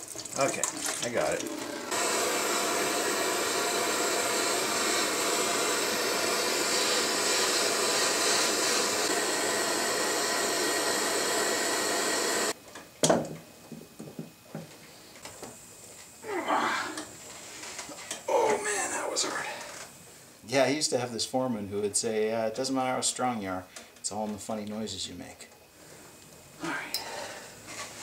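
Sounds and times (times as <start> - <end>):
gas torch hissing: 0.4 - 12.6, 16.3 - 20.0.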